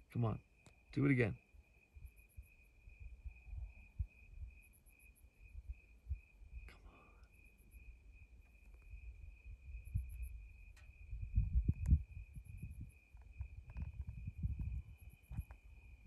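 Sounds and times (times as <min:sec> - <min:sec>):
crickets trilling: 0:00.0 - 0:16.0
faint low rumbling: 0:05.5 - 0:16.0.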